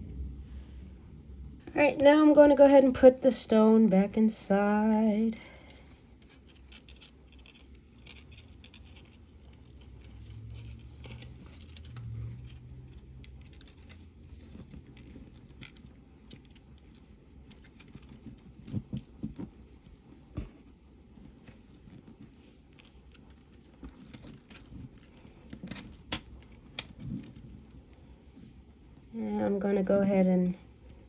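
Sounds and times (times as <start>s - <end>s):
wire scratching and clicking: 5.2s - 20.2s, 21.1s - 29.1s.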